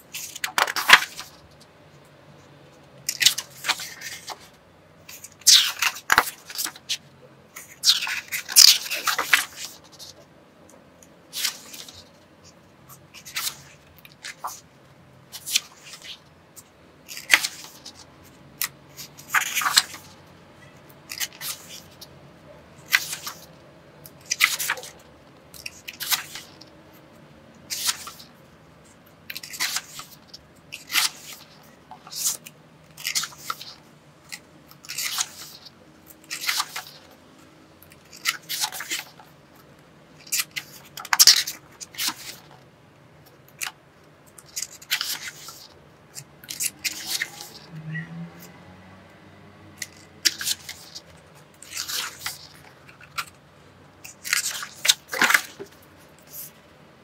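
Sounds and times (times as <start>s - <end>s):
paper pages turning: 0.1s - 1.6s, 3.0s - 4.5s, 5.1s - 7.0s, 7.6s - 10.2s, 11.3s - 14.6s, 15.3s - 16.2s, 17.1s - 20.2s, 21.1s - 22.1s, 22.8s - 23.6s, 24.2s - 26.7s, 27.7s - 28.3s, 29.3s - 37.2s, 38.0s - 39.3s, 40.2s - 42.6s, 43.5s - 47.7s, 49.8s - 53.4s, 54.0s - 56.6s.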